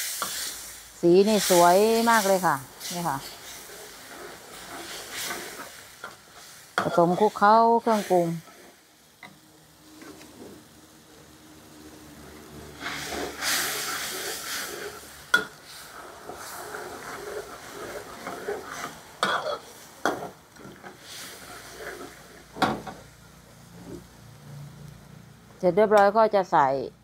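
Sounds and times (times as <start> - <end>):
sauce bubbling and sizzling: 0.0 - 25.6.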